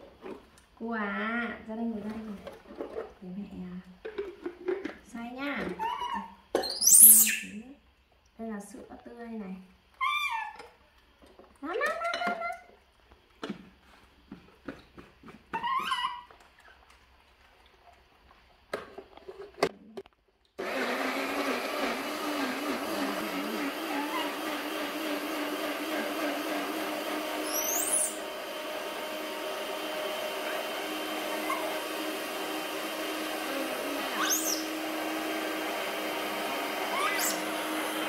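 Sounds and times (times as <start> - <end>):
baby monkeys squeaking: 5.8 - 7.6, 10.0 - 10.6, 15.6 - 16.3, 27.4 - 28.2, 36.9 - 37.5
blender motor running: 20.6 - 38.0.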